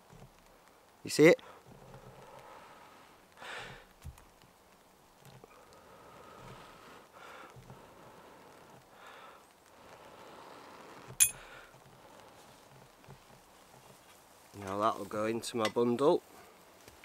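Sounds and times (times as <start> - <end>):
soft breathing: 0.5 - 4.0, 5.4 - 14.1, 16.2 - 17.0
light handling sounds: 10.9 - 17.0
sharp ringing clink: 11.2 - 11.4.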